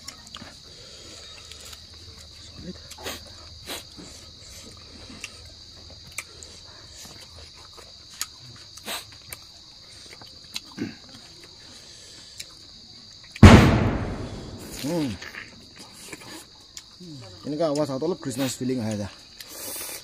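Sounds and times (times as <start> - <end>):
mouths chewing: 0.0 - 13.4, 14.5 - 20.0
chorus of night insects: 0.0 - 20.0
loud bang: 13.4 - 15.2.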